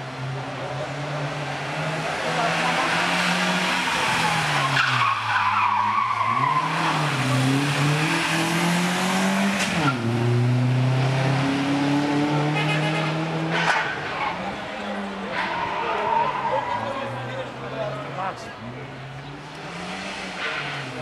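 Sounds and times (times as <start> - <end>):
rally car engine revving: 0.0 - 18.2, 18.9 - 21.0
tyres squealing: 3.7 - 7.6.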